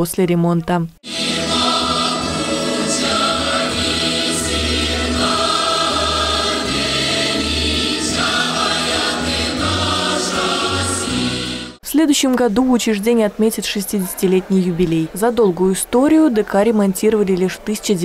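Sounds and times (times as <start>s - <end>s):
choir singing folk song: 1.1s - 11.8s.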